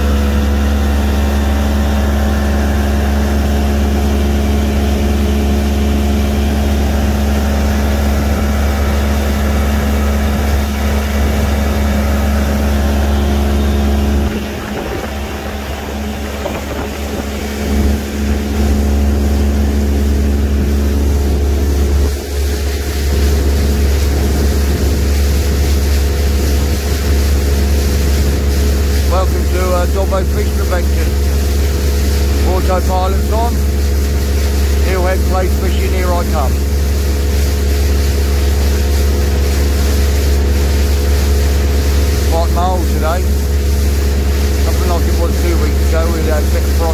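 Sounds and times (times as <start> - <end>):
outboard motor humming: 0.0 - 46.9.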